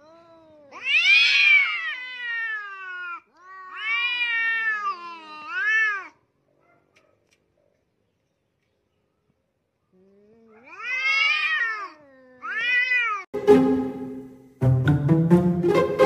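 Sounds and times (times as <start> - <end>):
cats yowling: 0.0 - 6.2, 10.3 - 13.3.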